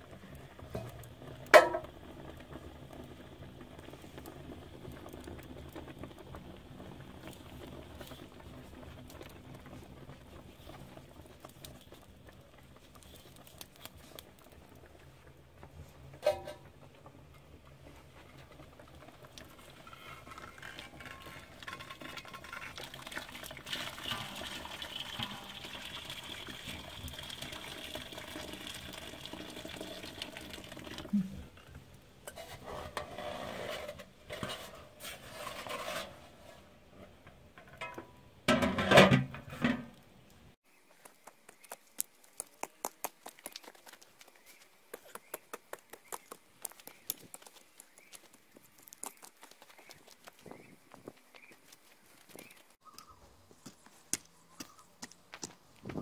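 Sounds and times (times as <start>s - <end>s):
water pouring from kettle: 18.6s - 31.2s.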